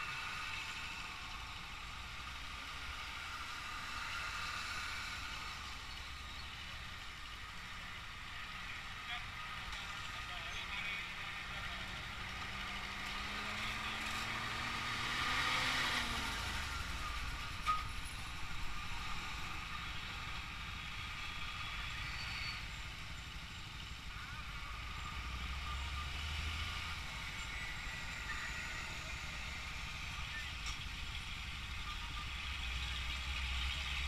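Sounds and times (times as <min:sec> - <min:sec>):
trucks passing close by: 0:00.0 - 0:34.0
vehicle engine pulling away: 0:11.1 - 0:34.0.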